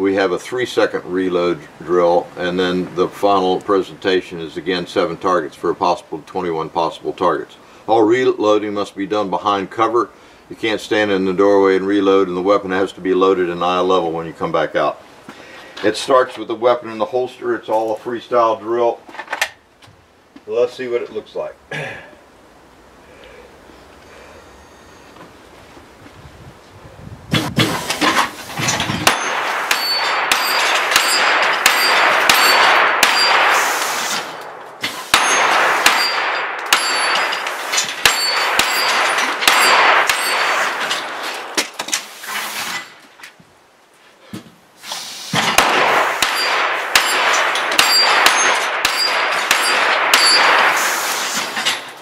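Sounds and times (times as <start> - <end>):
steel plates clanging: 27.4 - 43.0, 46.2 - 52.0
rapid handgun fire: 29.0 - 41.6, 45.5 - 51.3.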